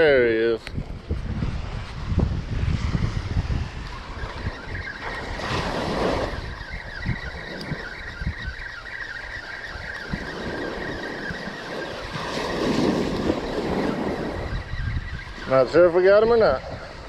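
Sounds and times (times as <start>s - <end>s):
wind on microphone: 0.0s - 17.0s
surf washing ashore: 1.4s - 8.3s, 8.9s - 17.0s
fishing reel gears whining: 3.8s - 17.0s.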